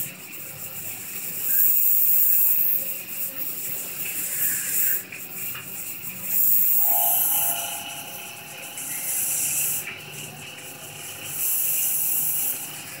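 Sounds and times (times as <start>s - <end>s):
coolant spray hiss: 0.0s - 13.0s
milling spindle whine: 6.3s - 13.0s.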